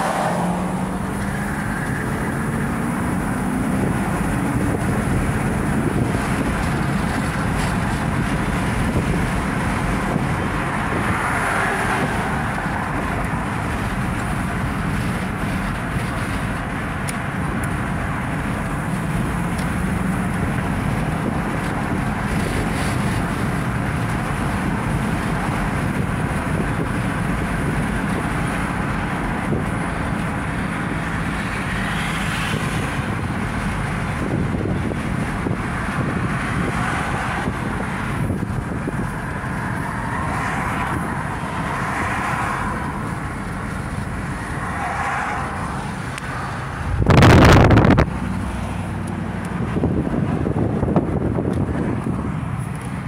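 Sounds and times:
road and wind noise in vehicle: 0.0s - 53.0s.

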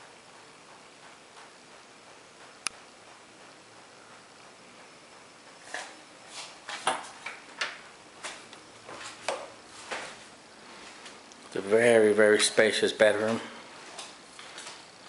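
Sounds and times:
footsteps on carpet: 8.2s - 11.2s.

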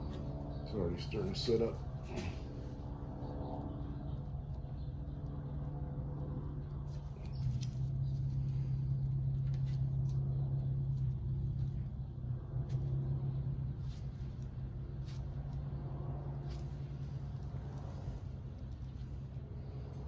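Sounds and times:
low machine hum: 0.0s - 20.0s.

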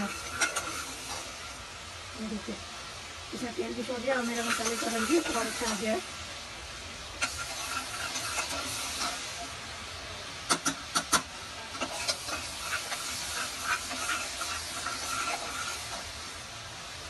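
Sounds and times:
spices sizzling in hot oil: 0.0s - 17.0s.

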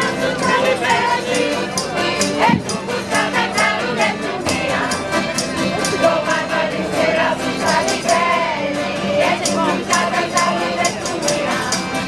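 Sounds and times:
accordion folk dance music: 0.0s - 12.0s
tambourine jingles: 0.0s - 12.0s
voices singing along: 0.0s - 12.0s.

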